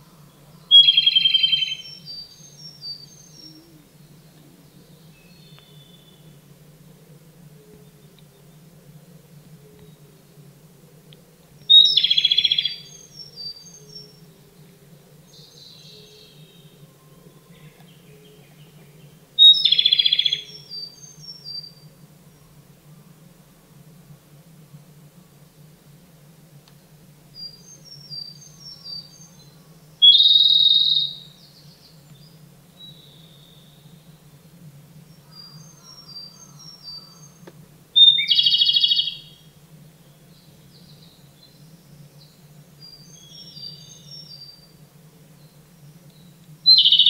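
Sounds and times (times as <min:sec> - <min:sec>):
bird singing trill: 0:00.0 - 0:06.4, 0:11.6 - 0:22.5, 0:27.3 - 0:34.3, 0:35.0 - 0:37.4, 0:38.0 - 0:44.8, 0:45.4 - 0:47.0
bird trill: 0:00.7 - 0:03.7, 0:11.7 - 0:14.2, 0:19.4 - 0:21.8, 0:27.4 - 0:31.7, 0:38.0 - 0:39.4, 0:46.7 - 0:47.0.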